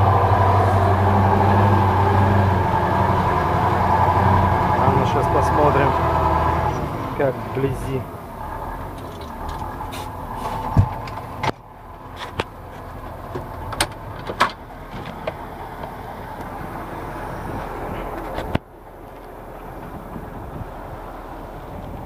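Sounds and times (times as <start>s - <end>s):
tractor engine running: 0.0s - 22.0s.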